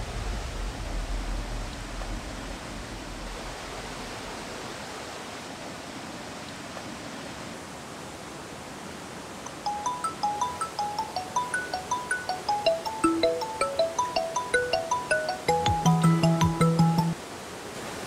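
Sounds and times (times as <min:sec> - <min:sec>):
marimba phone ringtone: 0:09.5 - 0:17.2.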